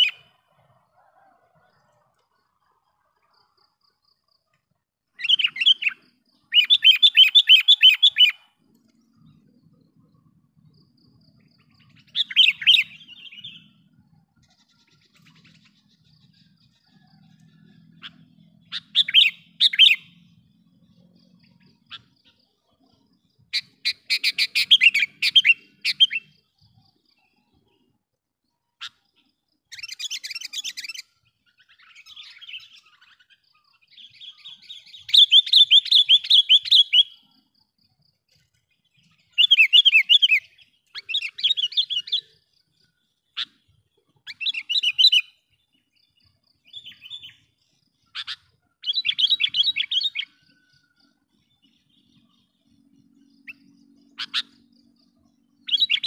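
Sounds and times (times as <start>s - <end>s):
bird calling in rapid notes: 5.2s - 8.5s, 54.2s - 54.7s.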